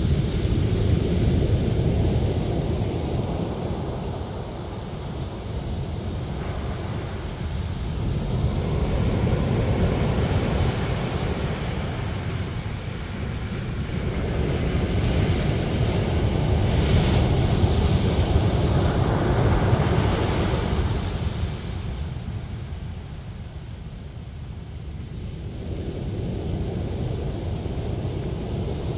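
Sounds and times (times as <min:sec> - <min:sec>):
wind buffeting microphone: 0:00.0 - 0:23.3
ocean surf on pebble beach: 0:00.0 - 0:23.4.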